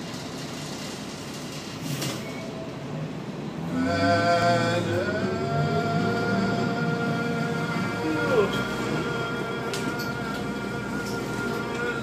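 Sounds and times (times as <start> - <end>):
transit vehicle ride noise: 0.0 - 12.0.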